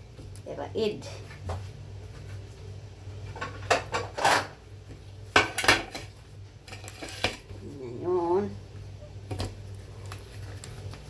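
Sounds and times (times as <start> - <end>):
low steady hum: 0.0 - 11.0
plate and utensils clattering: 3.4 - 4.6, 5.4 - 6.1.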